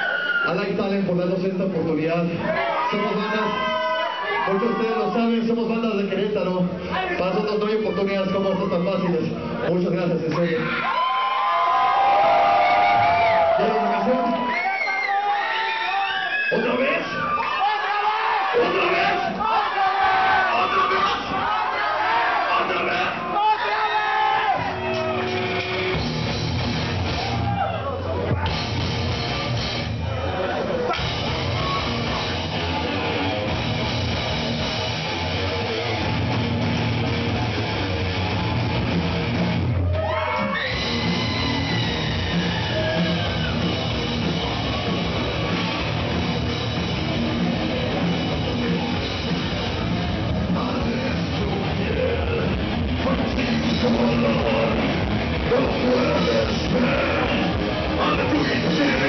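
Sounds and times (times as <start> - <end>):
rock band playing live: 24.5 - 59.0
person singing: 50.4 - 59.0.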